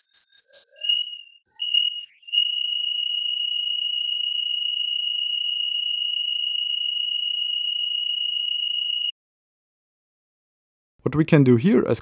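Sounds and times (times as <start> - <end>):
high-pitched synthetic tone: 0.0 - 2.6.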